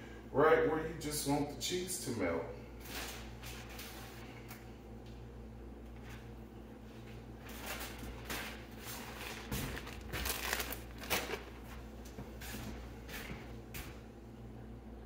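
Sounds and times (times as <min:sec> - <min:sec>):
low electrical hum: 0:00.0 - 0:15.0
crinkling handling noise: 0:02.8 - 0:04.6, 0:06.9 - 0:13.5.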